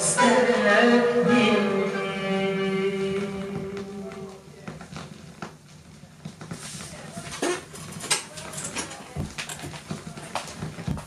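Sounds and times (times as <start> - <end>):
vinyl crackles and clicks: 3.5 - 8.4.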